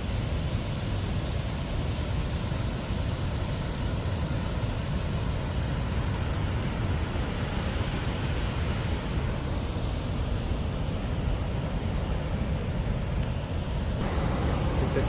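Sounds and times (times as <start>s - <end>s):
water rushing down rocky cascade: 0.0s - 12.9s.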